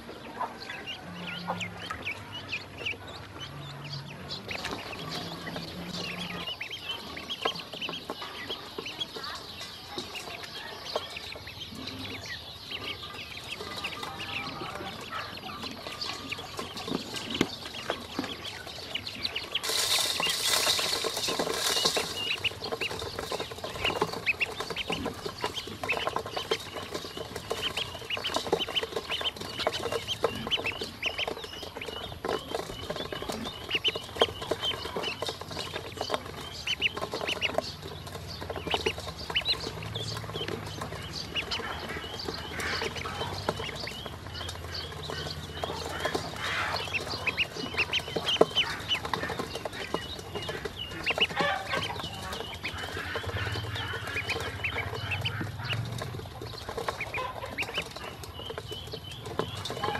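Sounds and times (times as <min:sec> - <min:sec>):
ducklings peeping: 0:00.0 - 0:59.9
bills tapping on metal bowl: 0:19.6 - 0:31.0.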